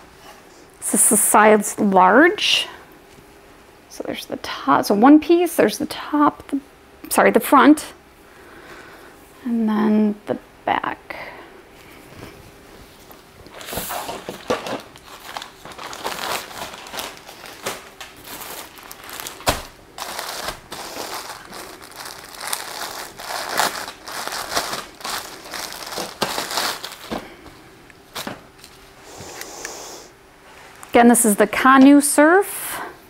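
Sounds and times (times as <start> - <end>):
packaging crinkling: 13.4 - 28.9.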